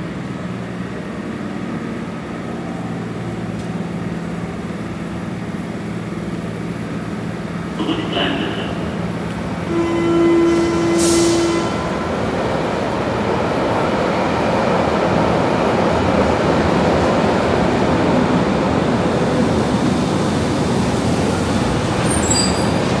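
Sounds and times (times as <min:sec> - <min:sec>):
train wheels and motors rumbling: 0:00.0 - 0:23.0
train warning tone: 0:09.7 - 0:12.3.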